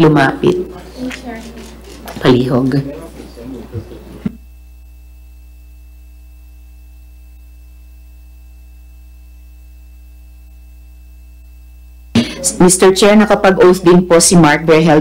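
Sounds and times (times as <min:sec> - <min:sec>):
electrical mains hum: 0:00.0 - 0:15.0
faint high whine: 0:00.0 - 0:15.0.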